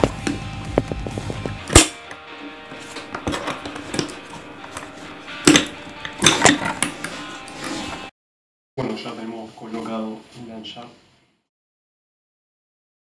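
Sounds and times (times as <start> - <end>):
background music: 0.0 - 8.1.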